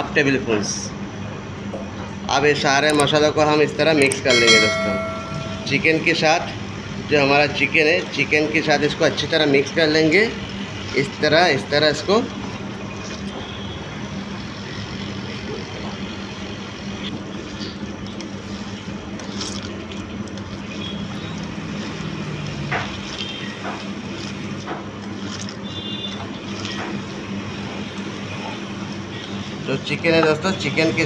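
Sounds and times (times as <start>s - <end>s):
machine hum: 4.4s - 7.2s.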